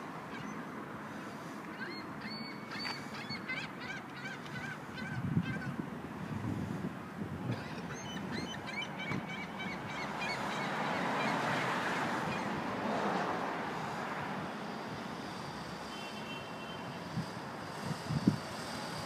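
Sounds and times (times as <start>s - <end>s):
outdoor noise rushing: 5.7s - 19.0s.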